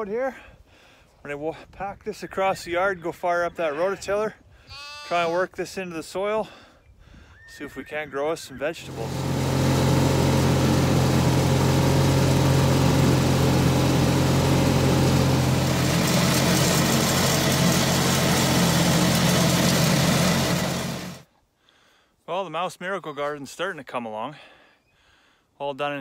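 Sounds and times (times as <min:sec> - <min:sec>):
garden tractor engine running: 0:08.8 - 0:21.3.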